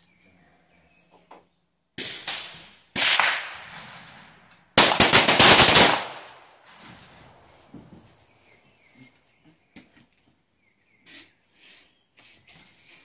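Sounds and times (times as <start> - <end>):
pistol shots: 2.0 - 4.0, 4.8 - 6.7.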